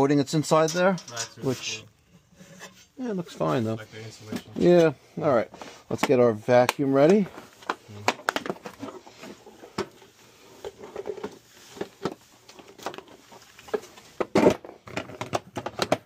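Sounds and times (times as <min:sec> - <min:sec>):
plastic clicks and knocks: 0:13.7 - 0:16.0.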